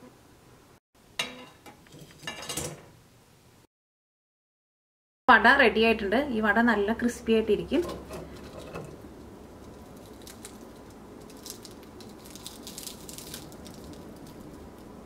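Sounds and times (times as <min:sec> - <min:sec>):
fried crust crackling: 0:07.7 - 0:15.0.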